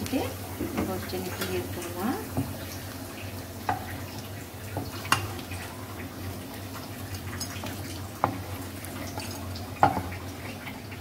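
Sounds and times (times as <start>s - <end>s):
oil sizzling in a wok: 0.0s - 11.0s
spatula tapping a pan: 3.6s - 4.0s, 4.7s - 5.4s, 7.5s - 8.5s, 9.1s - 10.2s.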